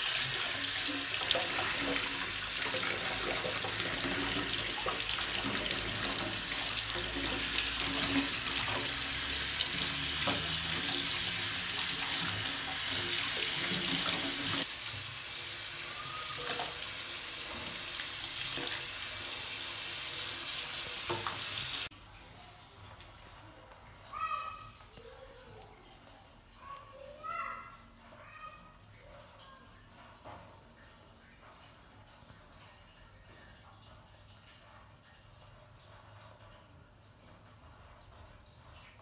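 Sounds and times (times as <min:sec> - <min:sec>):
water splashing in steel sink: 0:00.0 - 0:22.0
water running from faucet: 0:00.0 - 0:39.0.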